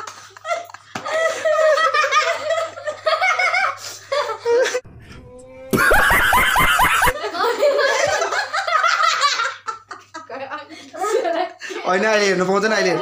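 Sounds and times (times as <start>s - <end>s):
young woman laughing: 5.7s - 10.3s.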